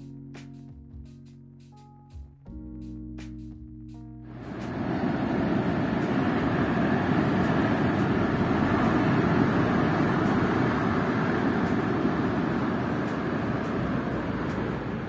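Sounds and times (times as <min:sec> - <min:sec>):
heavy surf on rocks: 0:04.4 - 0:15.0.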